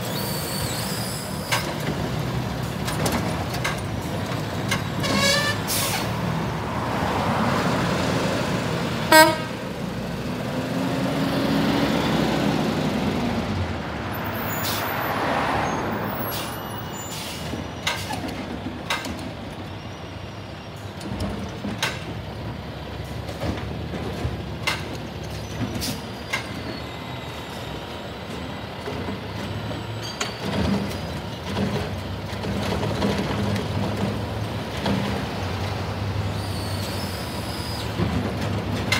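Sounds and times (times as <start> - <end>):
short toot or squeal: 0.0 - 1.6
road noise: 0.0 - 38.9.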